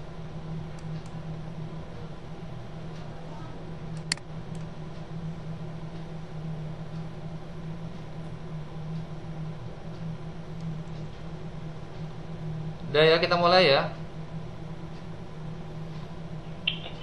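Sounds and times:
low hum with hiss: 0.0 - 17.0
sharp click: 16.7 - 17.0.

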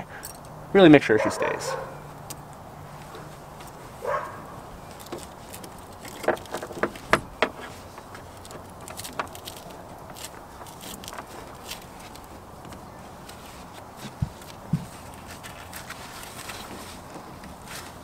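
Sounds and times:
rubber hose being handled: 4.8 - 18.0.

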